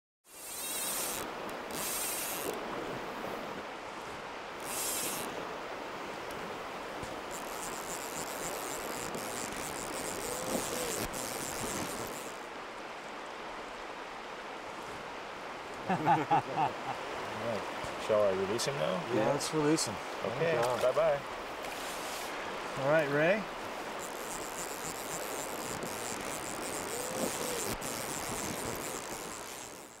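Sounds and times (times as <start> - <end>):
fly reel drag buzzing: 0.2 - 2.6, 4.6 - 5.5, 7.0 - 12.5, 23.8 - 30.0
river water rushing: 0.3 - 30.0.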